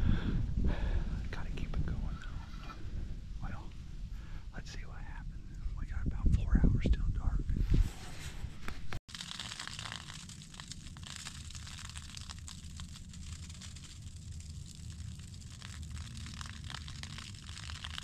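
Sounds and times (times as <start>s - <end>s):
low steady rumble: 0.0s - 18.0s
faint crinkling and rustling: 8.2s - 18.0s.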